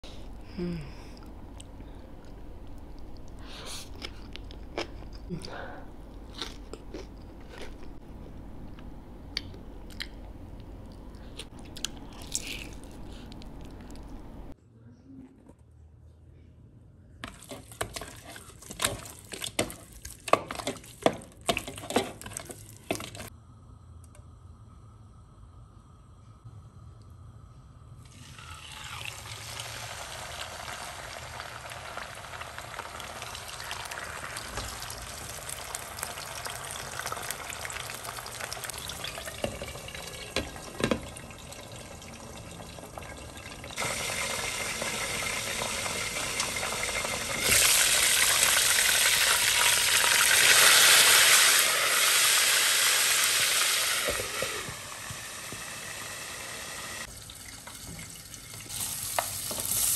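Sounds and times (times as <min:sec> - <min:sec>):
food sizzling in hot oil: 0:28.1 - 0:40.4, 0:43.8 - 0:57.1, 0:58.6 - 0:59.9.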